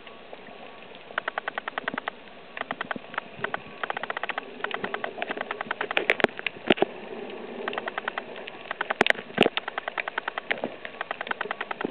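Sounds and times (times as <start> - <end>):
underwater crackling: 0.0 - 11.9
sharp loud cracks: 1.2 - 6.2.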